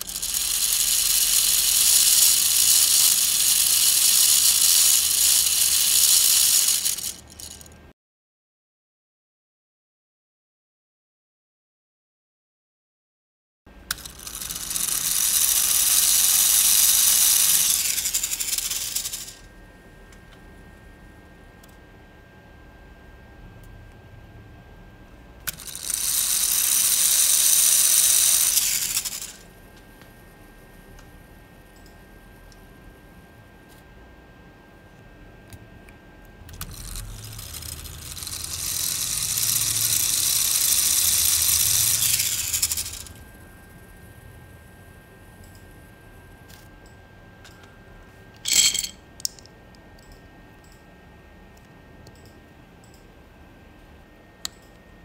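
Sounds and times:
plastic gears whirring with rattle: 0.0 - 7.8, 13.9 - 19.5, 25.4 - 29.5, 36.5 - 43.4, 48.4 - 49.4
faint steady whine: 13.7 - 55.0.

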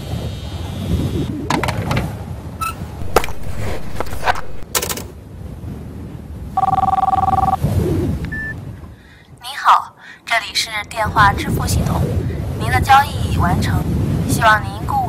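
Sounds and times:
electronic telephone ring: 6.6 - 7.6, 8.3 - 8.5
short beep: 6.6 - 7.6, 8.3 - 8.6.

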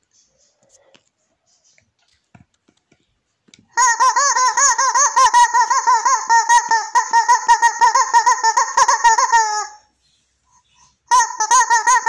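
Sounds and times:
rubber chicken toy squawking: 3.7 - 9.9, 11.1 - 12.0.

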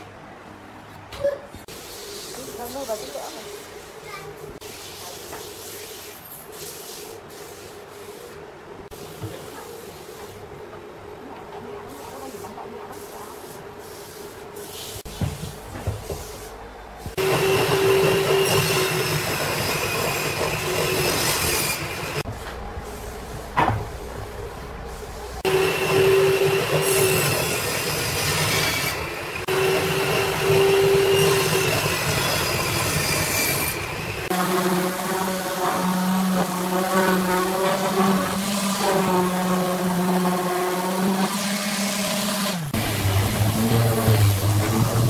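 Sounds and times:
table saw cutting wood: 17.1 - 22.2, 25.4 - 45.0.

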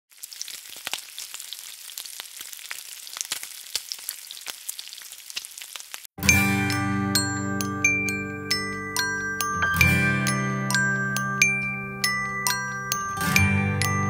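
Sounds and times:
food sizzling in hot oil: 0.1 - 6.2
music with ringing tones: 6.2 - 14.0.

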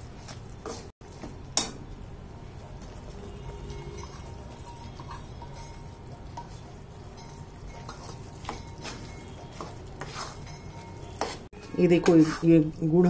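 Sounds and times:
metal spatula scraping steel pan: 2.5 - 12.8.

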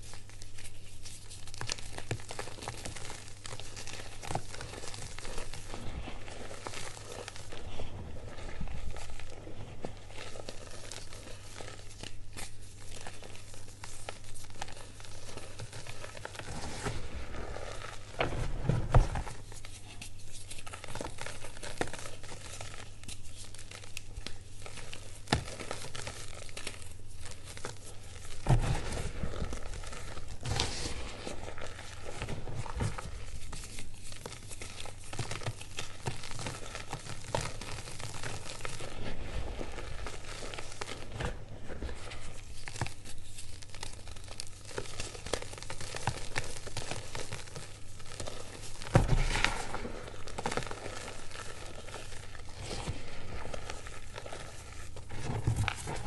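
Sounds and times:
chalk crunching in hands: 0.0 - 18.2.

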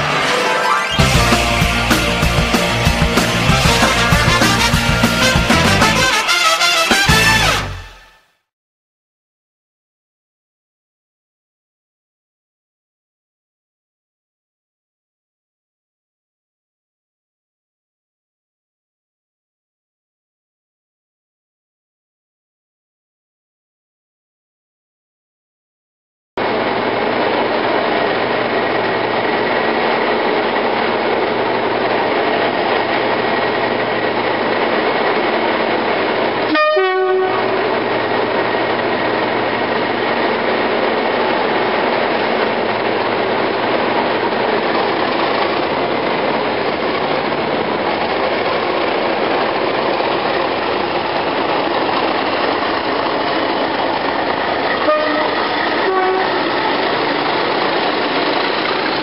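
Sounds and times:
diesel locomotive engine running: 0.0 - 8.0, 26.4 - 59.0
two-tone train horn: 0.0 - 8.4, 36.4 - 38.0, 54.8 - 56.6.

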